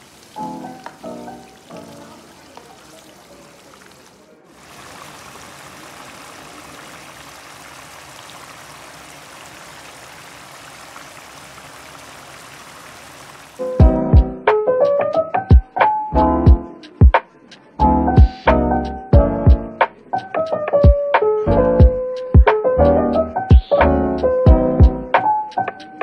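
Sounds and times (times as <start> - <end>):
piano music: 0.0 - 2.7, 13.6 - 16.9.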